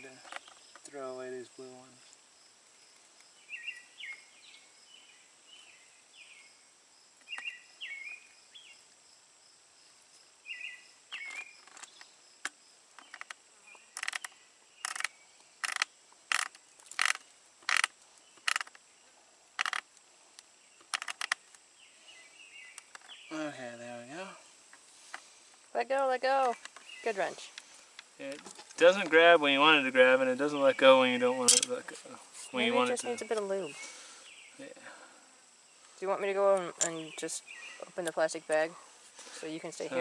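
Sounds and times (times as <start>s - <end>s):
high insect drone: 0.0s - 40.0s
bird chirps: 3.3s - 8.9s, 10.4s - 12.2s, 20.6s - 23.7s, 30.3s - 34.8s, 36.7s - 38.7s.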